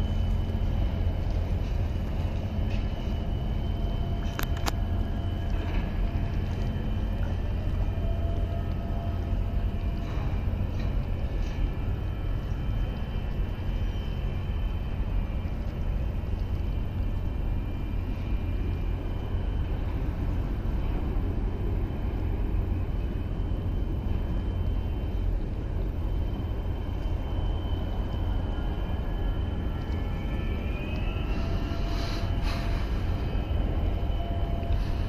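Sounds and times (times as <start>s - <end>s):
faint high whining tones: 0.0s - 35.0s
harbour ambience rumble and hiss: 0.0s - 35.0s.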